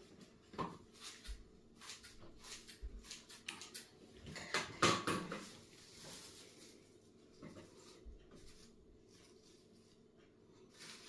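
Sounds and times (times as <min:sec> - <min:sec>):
kitchen wrap tearing: 0:00.8 - 0:09.9, 0:10.6 - 0:11.0.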